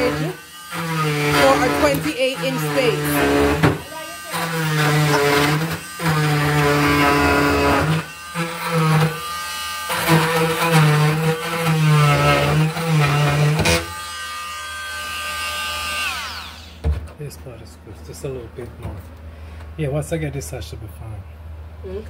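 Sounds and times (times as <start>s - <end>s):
oscillating multi-tool cutting: 0.0s - 16.8s.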